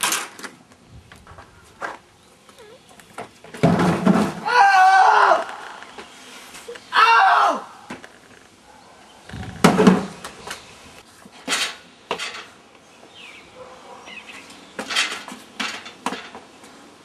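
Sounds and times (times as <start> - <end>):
metal furniture banging and clattering: 3.5 - 4.4, 11.4 - 12.6, 14.8 - 16.5.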